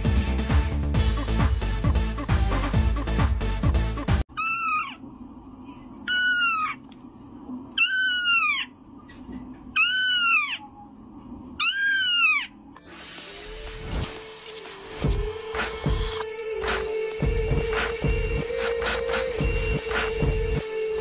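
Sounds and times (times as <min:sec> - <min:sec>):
electronic dance music: 0:00.0 - 0:04.2, 0:12.9 - 0:21.0
kitten meowing: 0:04.4 - 0:05.0, 0:06.1 - 0:06.8, 0:07.8 - 0:08.7, 0:09.8 - 0:10.6, 0:11.6 - 0:12.5.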